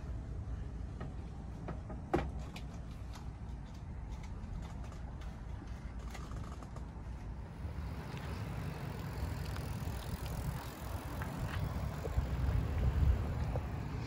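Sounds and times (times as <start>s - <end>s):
vehicle driving rumble: 0.0s - 14.0s
faint rattles and clicks: 1.0s - 7.4s.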